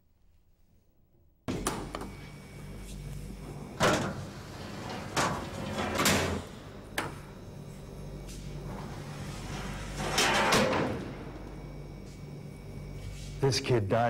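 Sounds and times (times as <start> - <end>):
steady low hum: 0.0 - 14.0
trays sliding and scraping: 3.4 - 7.0, 8.2 - 11.5
metal doors clunking: 3.7 - 7.3, 8.7 - 11.6.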